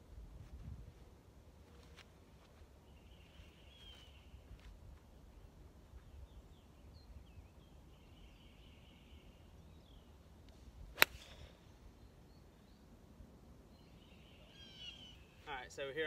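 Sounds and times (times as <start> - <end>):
birds chirping: 2.5 - 16.0
golf club striking ball: 11.0 - 11.4.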